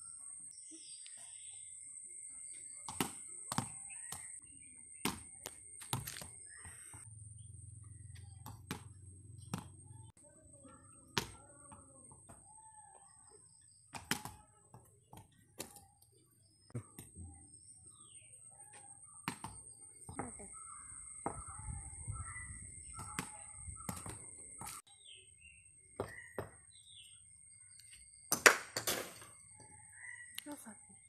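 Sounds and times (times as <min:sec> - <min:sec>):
faint bird chirps: 0:00.0 - 0:28.3, 0:29.2 - 0:31.0
ball hitting concrete: 0:02.6 - 0:07.1, 0:08.1 - 0:10.1, 0:10.7 - 0:17.3, 0:18.8 - 0:21.8, 0:22.9 - 0:24.8, 0:26.0 - 0:27.0, 0:28.3 - 0:29.4.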